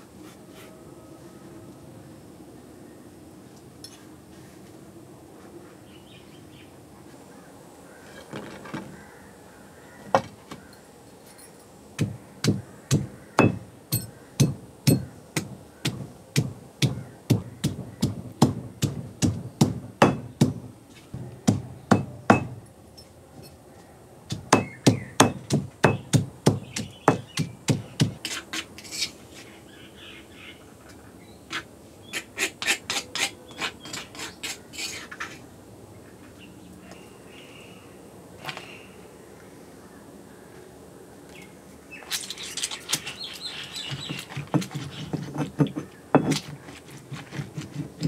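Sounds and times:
pestle pounding in stone mortar: 0:12.0 - 0:20.7, 0:21.4 - 0:22.6, 0:24.3 - 0:28.2, 0:43.9 - 0:48.0.

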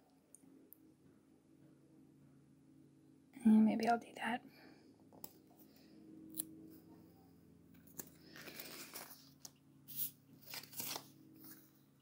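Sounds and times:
paper rustling and crinkling: 0:07.8 - 0:11.8.

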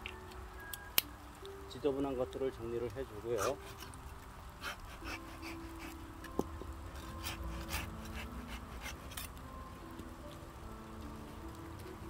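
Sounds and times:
hand shears snipping pine needles: 0:03.4 - 0:04.0, 0:04.6 - 0:09.4.

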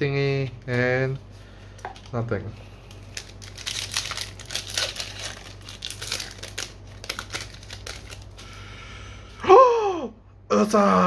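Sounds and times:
foil wrapper crinkling and tearing: 0:02.9 - 0:08.6.

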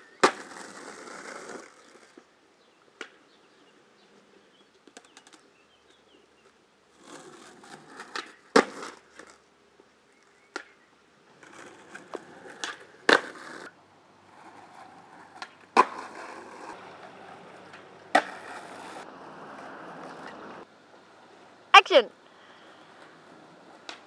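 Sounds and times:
skateboard wheels rolling on concrete: 0:00.0 - 0:24.0
skateboard clacking on ground: 0:00.2 - 0:02.2, 0:07.0 - 0:09.4, 0:10.5 - 0:20.6, 0:23.0 - 0:24.0.

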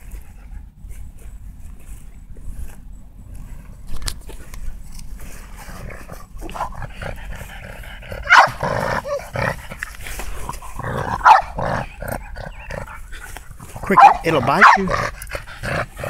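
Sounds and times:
dog barking and growling: 0:05.5 - 0:16.0.

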